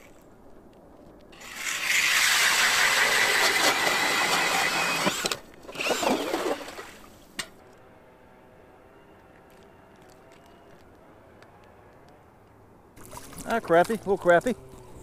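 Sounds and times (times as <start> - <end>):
powered ice auger whining: 1.4 - 7.0.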